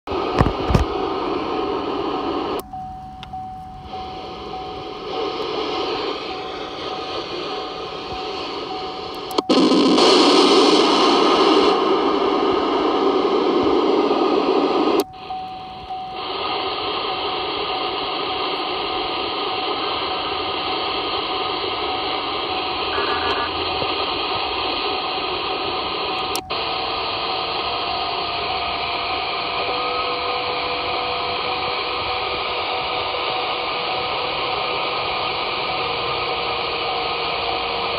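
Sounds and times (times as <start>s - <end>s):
radio static hiss: 0.1s - 2.7s, 3.3s - 37.9s
radio mode switch clicks: 0.3s - 1.0s, 7.1s - 10.1s, 14.8s - 16.0s
faint steady whistles: 1.0s - 37.9s.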